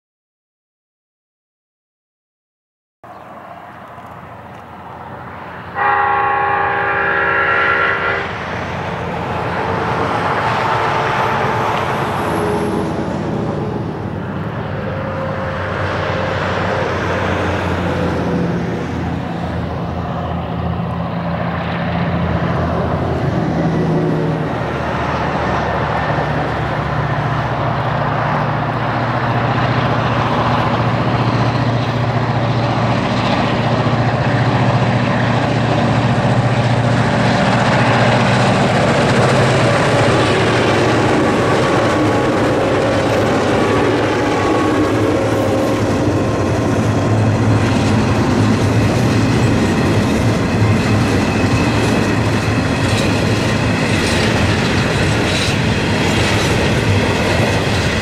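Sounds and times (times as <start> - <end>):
diesel locomotive engines running: 3.0 - 58.0
locomotive air horn blast: 5.7 - 8.6.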